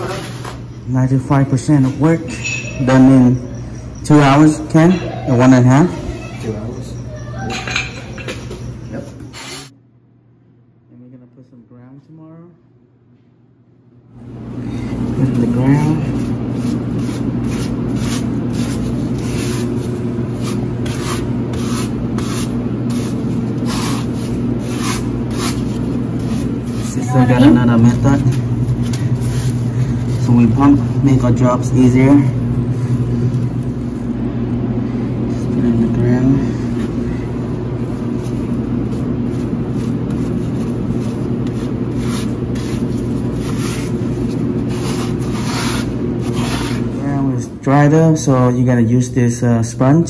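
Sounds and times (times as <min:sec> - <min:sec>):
steady low hum: 0:00.0 - 0:50.0
grout scraping on tiles: 0:15.3 - 0:30.4, 0:38.1 - 0:46.9.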